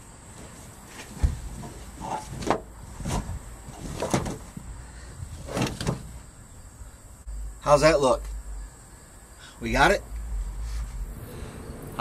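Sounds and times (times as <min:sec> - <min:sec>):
carpet rustling swishes: 0:00.3 - 0:06.3
carpet soft thumps: 0:01.0 - 0:01.8.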